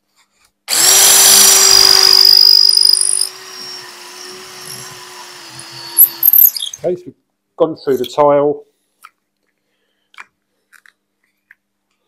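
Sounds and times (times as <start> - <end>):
drill grinding through tile: 0.7 - 6.8.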